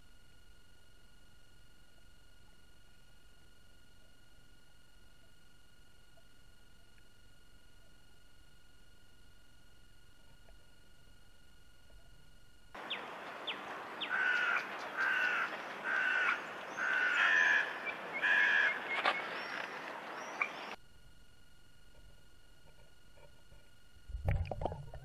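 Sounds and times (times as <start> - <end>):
steady outdoor hiss: 0.0 - 25.0
crow cawing: 14.0 - 18.9.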